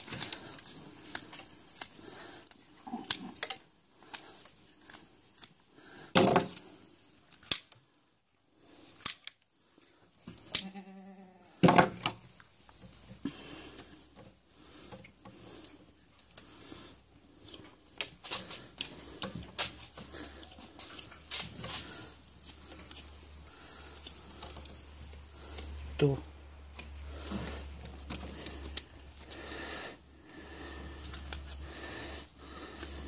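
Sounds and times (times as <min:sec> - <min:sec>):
hoof shears snipping: 0:10.3 - 0:10.8.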